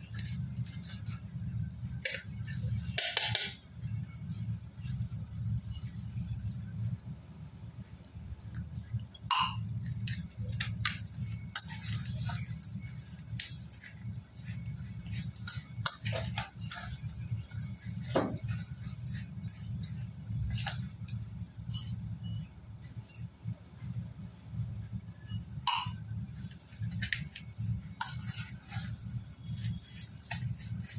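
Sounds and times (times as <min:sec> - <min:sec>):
spoon scraping steel bowl: 0:00.0 - 0:01.5, 0:09.3 - 0:22.1, 0:25.7 - 0:30.9
steady low hum: 0:00.0 - 0:30.9.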